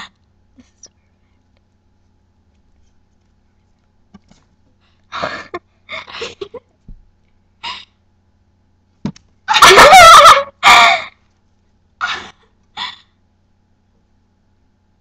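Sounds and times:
person giggling: 0:05.2 - 0:06.8.

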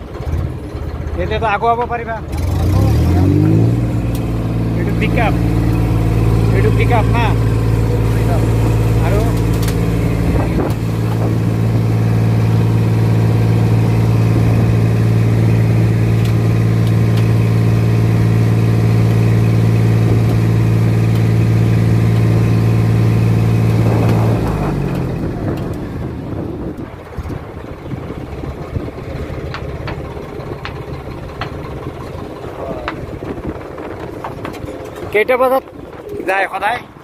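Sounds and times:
boat engine running hard: 0:00.0 - 0:37.0.

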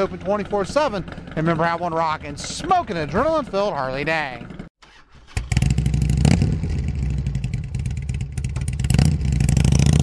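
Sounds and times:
motorcycle engine running and revving: 0:00.0 - 0:04.7, 0:05.4 - 0:10.0.

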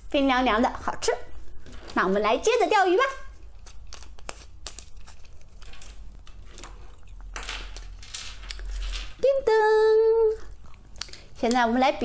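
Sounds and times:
plastic rustling and crinkling: 0:01.6 - 0:10.5.

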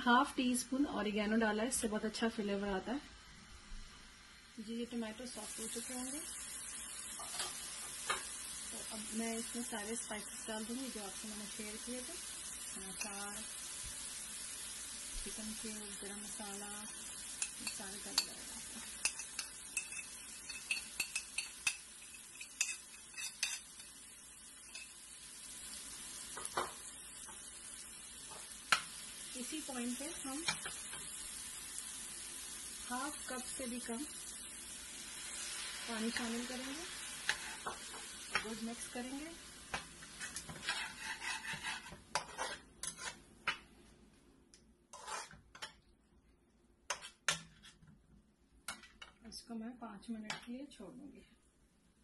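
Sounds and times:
tomatoes sizzling in oil: 0:00.0 - 0:44.2, 0:44.9 - 0:45.8, 0:46.9 - 0:47.8
spoon scraping a plate: 0:17.4 - 0:23.9, 0:37.2 - 0:37.8, 0:40.0 - 0:43.2, 0:44.9 - 0:45.8
spoon scraping through sauce: 0:40.2 - 0:43.2, 0:44.9 - 0:45.4.

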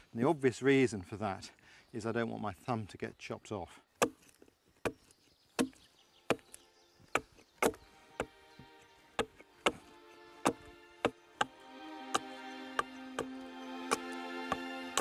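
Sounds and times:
axe chopping wood: 0:04.0 - 0:08.4, 0:09.1 - 0:15.0
soft music: 0:07.6 - 0:15.0.

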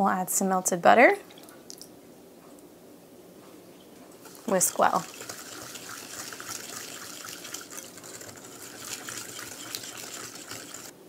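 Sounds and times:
whisk swishing in glass bowl: 0:04.2 - 0:10.9
whisk ticking on bowl: 0:04.2 - 0:10.9.

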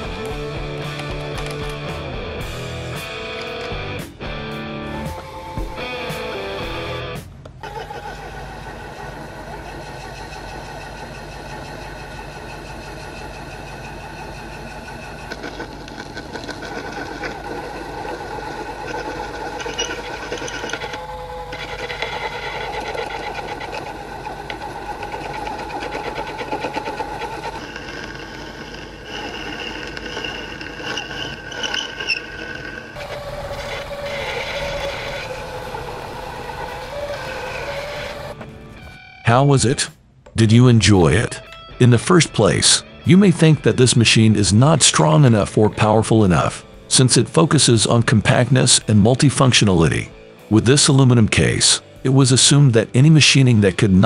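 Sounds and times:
boring bar cutting metal: 0:00.0 - 0:03.8, 0:07.6 - 0:38.6
lathe motor whine: 0:00.0 - 0:03.9, 0:04.8 - 0:07.0, 0:07.6 - 0:39.0, 0:41.0 - 0:54.0.

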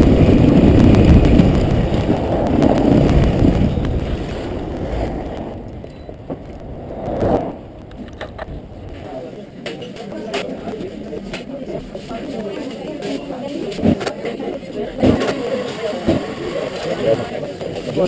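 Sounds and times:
wind noise: 0:00.0 - 0:09.3.

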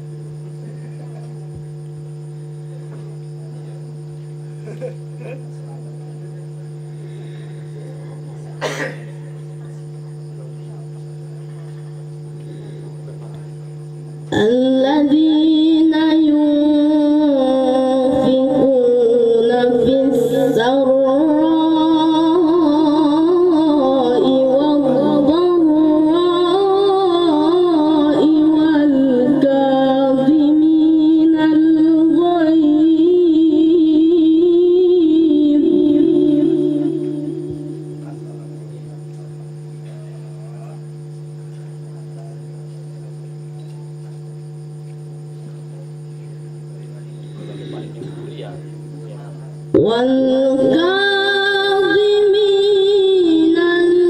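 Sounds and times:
steady low hum: 0:00.0 - 0:54.0
boy chanting melodic recitation: 0:14.3 - 0:39.0, 0:47.1 - 0:54.0.

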